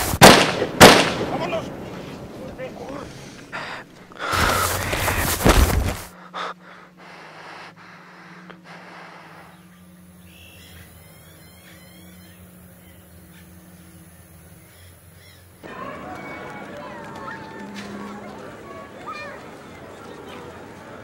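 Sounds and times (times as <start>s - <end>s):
low steady hum: 0.6s - 15.8s
man gasping and breathing hard: 3.1s - 5.4s, 6.0s - 8.9s.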